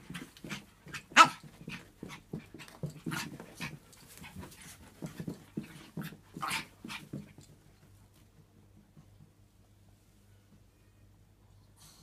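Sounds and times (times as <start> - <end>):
small dog panting: 0.0 - 7.5.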